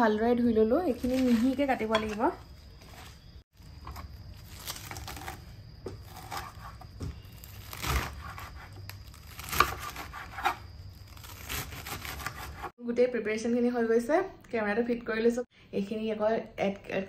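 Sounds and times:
leaves rustling: 0.7 - 6.6.

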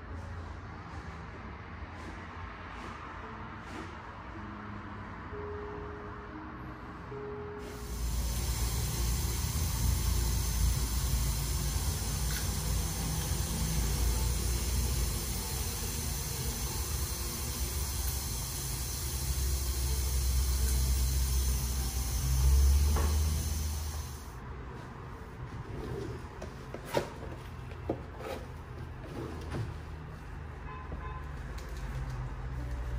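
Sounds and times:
dental equipment hiss and rumble: 7.6 - 24.3.

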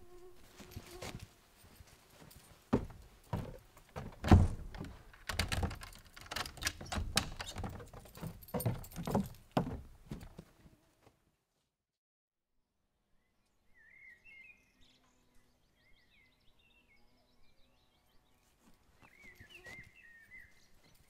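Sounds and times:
footsteps on wooden steps: 0.5 - 10.8
keys jangling: 4.9 - 9.6
key clicking in door lock: 5.1 - 7.6.

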